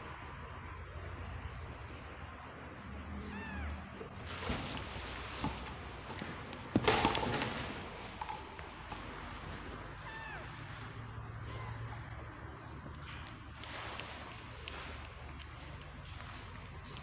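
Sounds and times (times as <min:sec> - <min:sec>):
cat mewing: 0:03.2 - 0:04.1, 0:09.9 - 0:10.8
rustling: 0:04.1 - 0:11.2, 0:12.8 - 0:17.0.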